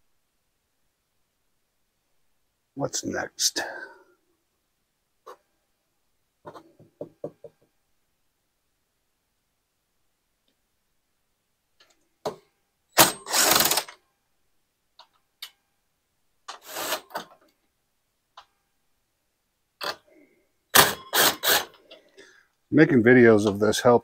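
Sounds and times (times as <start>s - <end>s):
cordless driver whirring: 13.3s - 13.8s.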